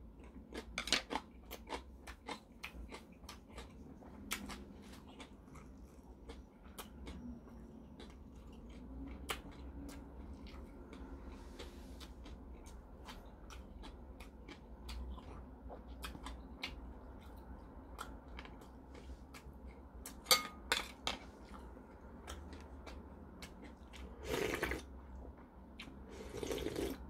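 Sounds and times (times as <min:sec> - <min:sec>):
chewing with wet mouth clicks: 0:00.0 - 0:20.3, 0:21.1 - 0:27.0
ceramic bowl clinking: 0:20.3 - 0:20.9
slurping broth: 0:24.2 - 0:24.8, 0:26.1 - 0:27.0.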